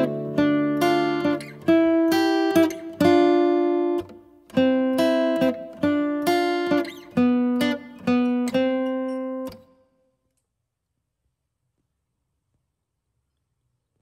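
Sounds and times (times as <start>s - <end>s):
acoustic guitar plucked notes: 0.0s - 9.8s.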